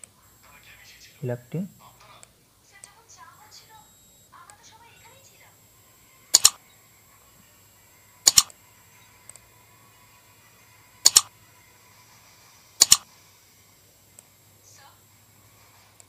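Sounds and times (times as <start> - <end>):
computer mouse double clicks: 6.4 - 6.6, 8.3 - 8.5, 11.1 - 11.3, 12.8 - 13.0.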